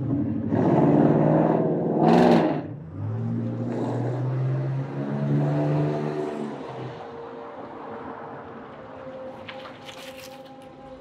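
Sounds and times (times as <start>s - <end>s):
car engine pulling away: 0.0s - 7.0s.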